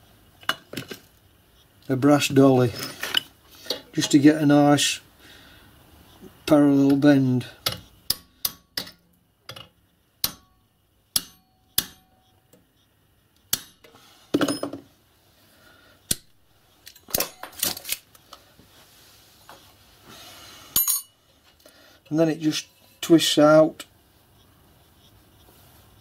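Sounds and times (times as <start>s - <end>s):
hammer tapping metal: 7.6s - 12.3s, 13.5s - 14.8s.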